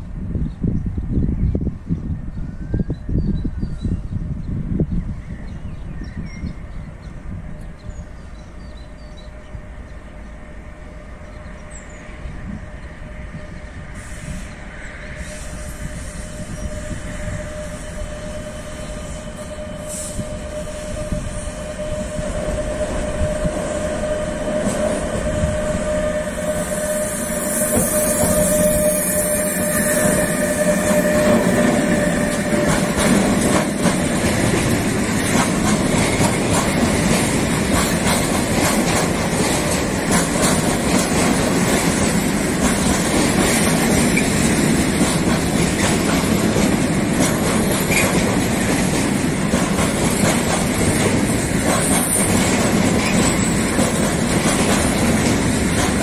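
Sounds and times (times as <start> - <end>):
freight train rumble: 0.0 - 56.0
train whine: 0.0 - 56.0
train wheel clatter: 15.2 - 56.0.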